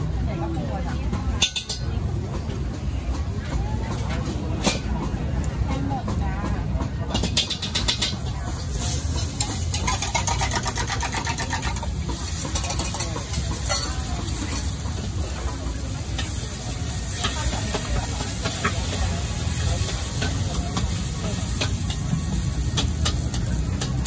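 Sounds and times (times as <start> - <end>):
gas burner rumbling: 0.0 - 24.0
egg sizzling in hot oil: 8.7 - 24.0.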